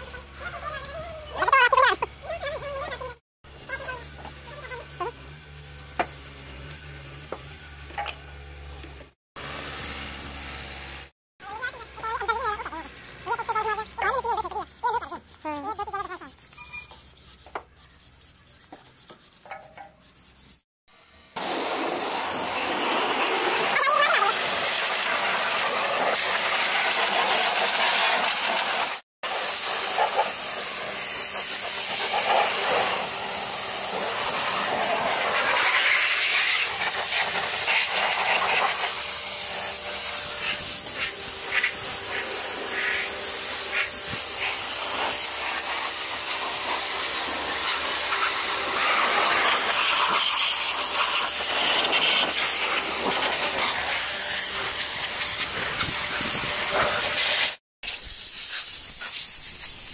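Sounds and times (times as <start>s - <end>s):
pressure washer spraying: 3.5s - 10.3s, 21.4s - 59.9s.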